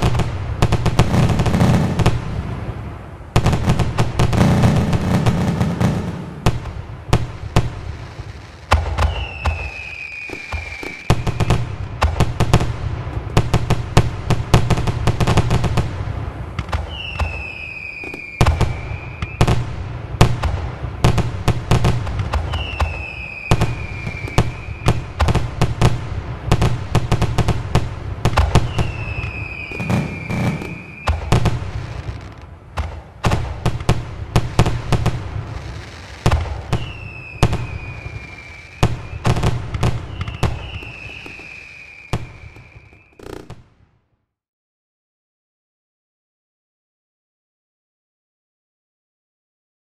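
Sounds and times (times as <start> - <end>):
fireworks bangs and crackles: 0.0 - 44.1
falling firework whistle: 8.3 - 12.6, 16.6 - 19.7, 21.9 - 25.8, 28.3 - 32.4, 35.6 - 43.6.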